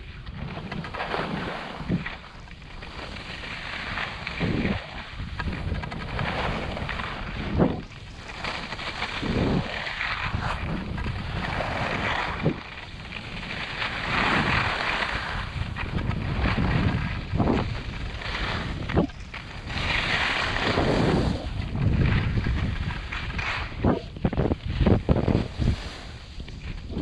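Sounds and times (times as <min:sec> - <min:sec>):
skis scraping on snow: 0:00.0 - 0:27.0
wind buffeting microphone: 0:03.3 - 0:27.0.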